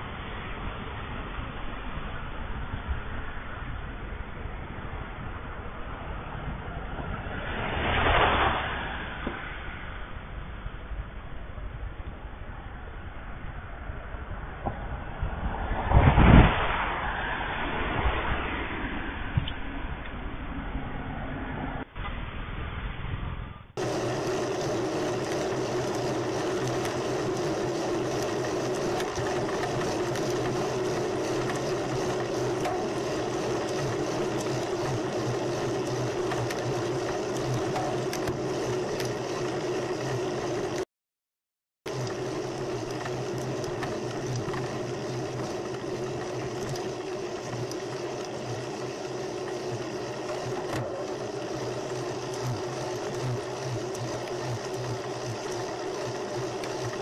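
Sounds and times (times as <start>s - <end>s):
bicycle road noise: 0.0s - 40.8s, 41.9s - 57.0s
wind noise: 11.6s - 23.3s.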